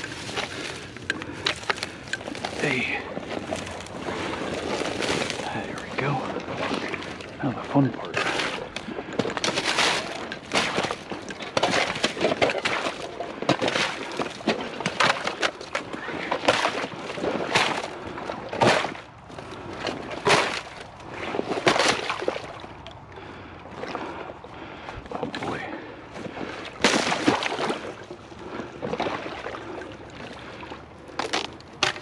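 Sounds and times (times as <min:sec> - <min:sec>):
ice cracking and crunching: 0:00.0 - 0:18.0, 0:19.8 - 0:22.6, 0:26.8 - 0:27.9, 0:31.1 - 0:32.0
water sloshing: 0:00.0 - 0:32.0.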